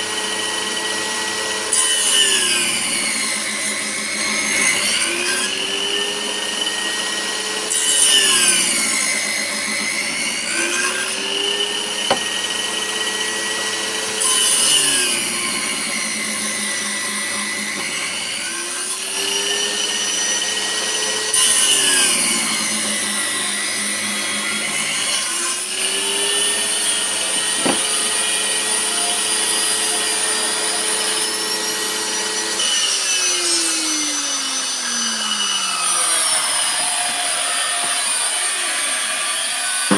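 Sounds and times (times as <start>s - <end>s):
table saw whining: 0.0s - 39.9s
sharp knocks: 12.0s - 12.4s, 27.5s - 28.0s.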